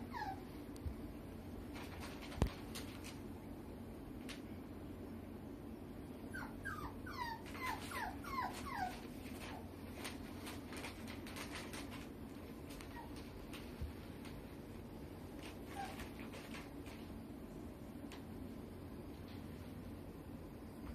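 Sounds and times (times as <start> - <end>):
puppy whimpering squeaks: 0.0 - 0.4, 6.3 - 9.6, 12.8 - 13.2, 15.6 - 16.3.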